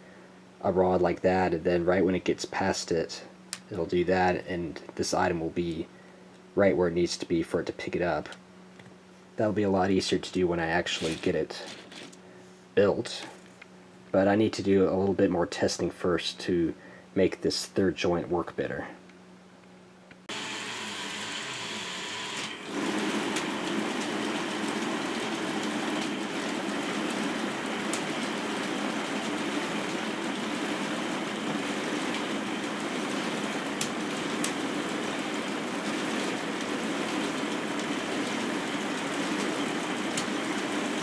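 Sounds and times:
plastic gears whirring and rattling: 0:10.8 - 0:12.2.

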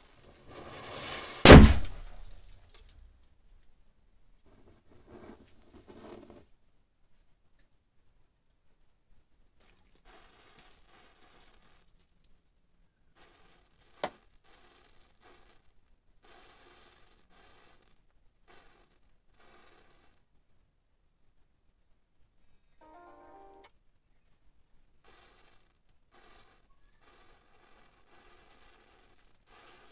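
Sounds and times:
matches flaring and hissing: 0:00.0 - 0:02.6, 0:26.2 - 0:29.9
sharp crack: 0:00.3 - 0:03.0.

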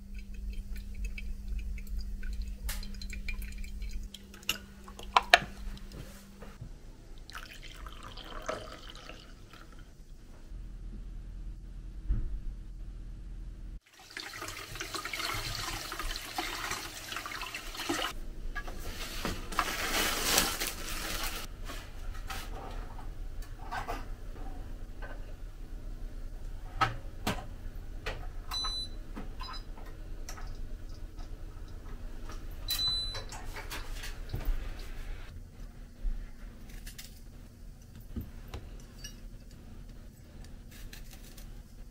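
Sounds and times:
tap water running: 0:00.0 - 0:06.0, 0:07.2 - 0:09.9, 0:13.8 - 0:18.2.

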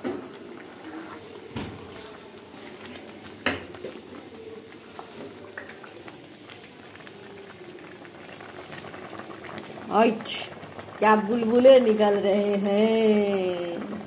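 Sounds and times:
milk bubbling in a pan: 0:00.0 - 0:14.0.

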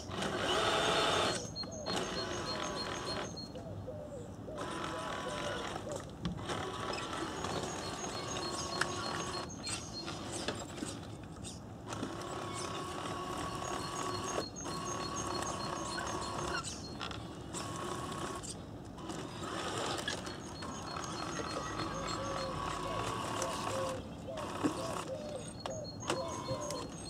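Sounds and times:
electric motor and gearbox whine: 0:00.0 - 0:03.6, 0:04.6 - 0:27.0
high electronic beeps: 0:01.4 - 0:03.6, 0:07.4 - 0:10.3, 0:13.3 - 0:17.0, 0:20.0 - 0:23.8, 0:24.9 - 0:27.0.

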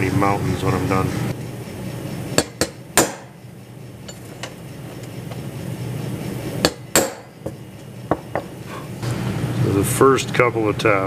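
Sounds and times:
hammer tapping metal: 0:02.4 - 0:03.4, 0:06.6 - 0:08.5.

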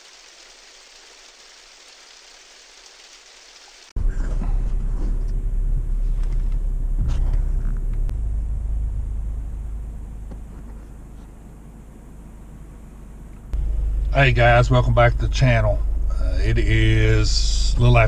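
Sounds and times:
car cabin road noise: 0:04.0 - 0:18.0.

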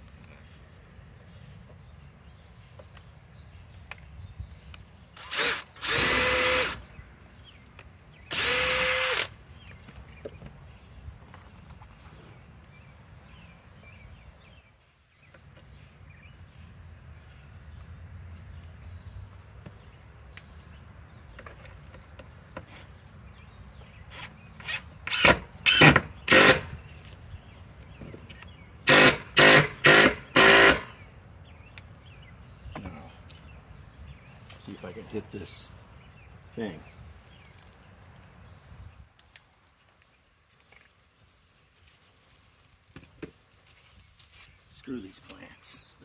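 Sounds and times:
power driver motor whine: 0:05.2 - 0:06.8, 0:08.3 - 0:09.3.

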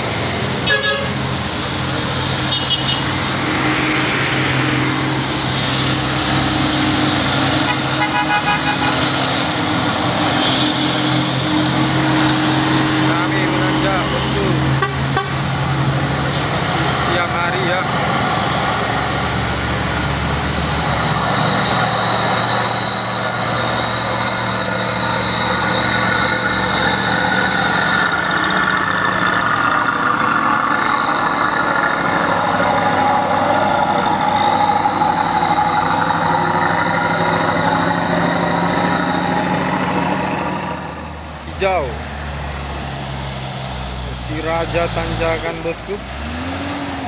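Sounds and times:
diesel trucks passing: 0:00.0 - 0:47.0
steady high whine: 0:01.4 - 0:07.7.

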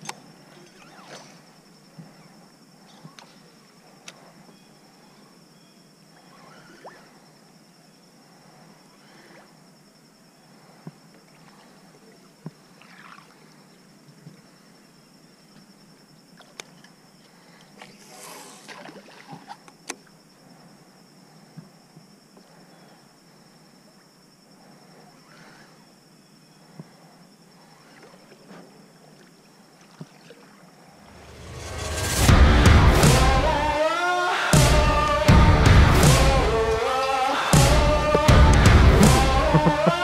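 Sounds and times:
water trickling and lapping: 0:00.0 - 0:05.4, 0:06.1 - 0:22.7, 0:26.6 - 0:31.5.

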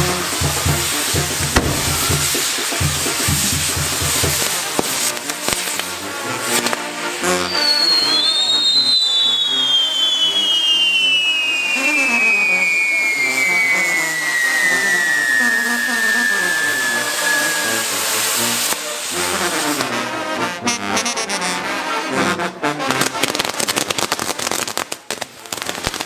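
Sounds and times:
brass band playing: 0:00.0 - 0:08.4, 0:11.6 - 0:23.9
whistling fireworks: 0:00.0 - 0:20.4, 0:22.9 - 0:26.0.

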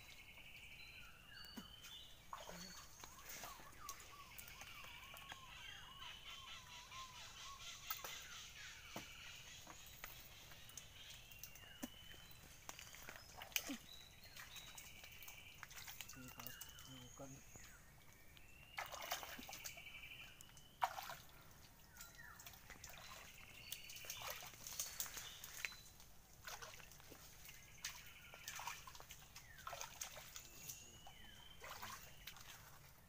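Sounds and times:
feet splashing through muddy water: 0:01.8 - 0:05.5, 0:09.8 - 0:17.0, 0:18.7 - 0:19.9, 0:20.6 - 0:33.0.

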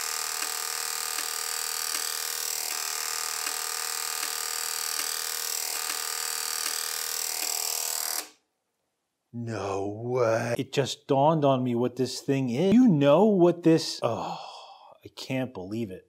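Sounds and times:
electric buzz: 0:00.0 - 0:08.4
rotary switches clicking: 0:00.3 - 0:02.3, 0:03.3 - 0:07.6.

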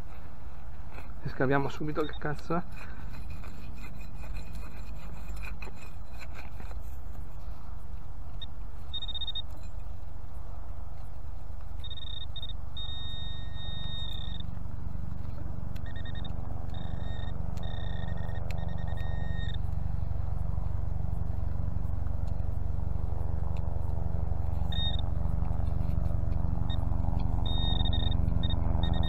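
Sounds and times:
scraping sounds: 0:00.0 - 0:08.1, 0:24.4 - 0:28.6
metal detector electronic tone: 0:01.6 - 0:02.5, 0:08.3 - 0:09.9, 0:11.8 - 0:14.6, 0:15.2 - 0:19.7, 0:24.5 - 0:26.0, 0:26.6 - 0:29.0
steady low rumble: 0:06.0 - 0:29.0.

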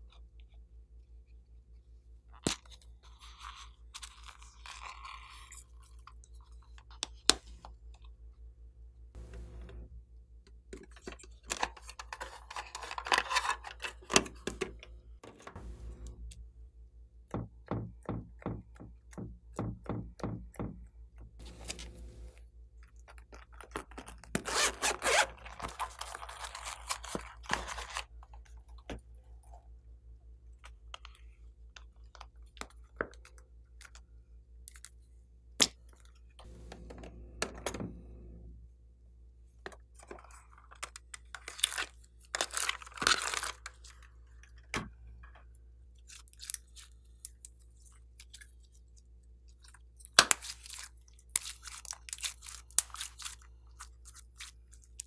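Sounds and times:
zippered pouch rustling: 0:24.4 - 0:28.1.

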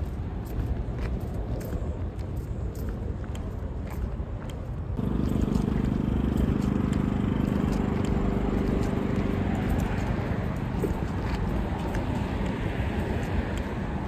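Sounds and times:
road noise: 0:00.0 - 0:14.0
vehicle engine humming: 0:04.2 - 0:14.0.

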